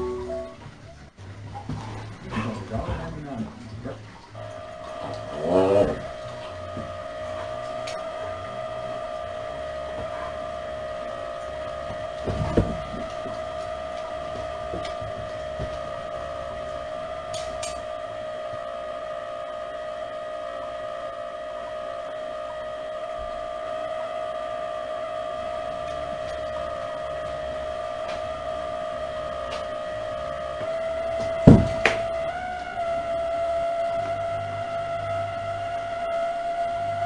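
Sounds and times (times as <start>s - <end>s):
steady hum-like tone: 0.0s - 37.0s
low thump: 31.2s - 32.1s.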